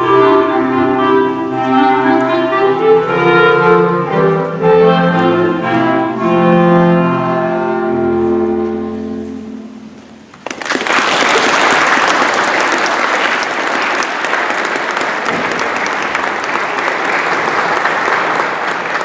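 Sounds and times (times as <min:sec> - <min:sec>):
music: 0:00.0 - 0:10.3
audience applauding: 0:10.3 - 0:19.0.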